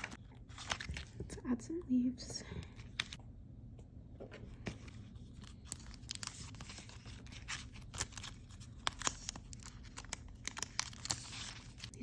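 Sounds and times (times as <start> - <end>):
sticker sheets rustling: 4.3 - 12.0.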